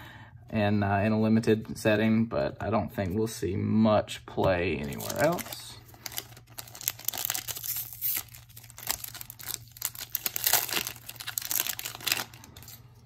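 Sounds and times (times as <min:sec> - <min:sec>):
foil wrapper crinkling: 0:04.8 - 0:13.0.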